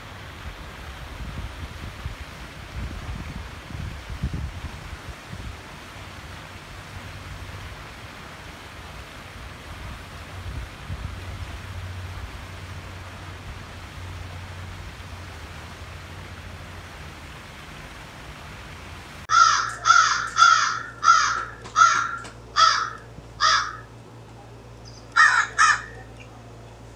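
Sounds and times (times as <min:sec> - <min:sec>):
low rumble and hiss: 0:00.0 - 0:26.9
crow cawing: 0:19.3 - 0:23.9, 0:25.1 - 0:26.1.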